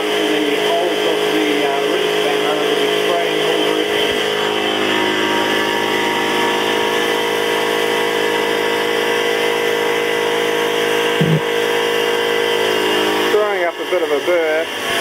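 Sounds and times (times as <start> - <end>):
short thud: 11.2 - 11.4.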